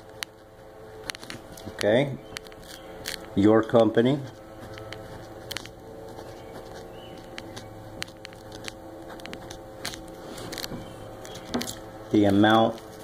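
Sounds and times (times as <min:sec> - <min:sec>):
background hum: 0:00.0 - 0:13.0
pen scratching on paper: 0:04.2 - 0:11.8.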